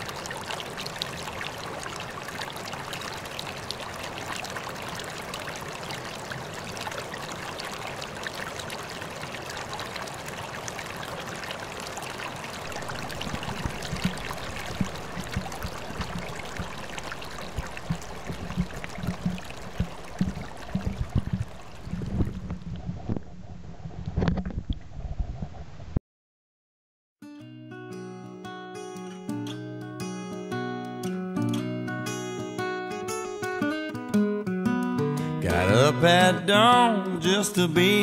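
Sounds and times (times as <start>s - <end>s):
stream water rushing: 0.0s - 22.6s
low thuds and bumps: 12.7s - 25.6s.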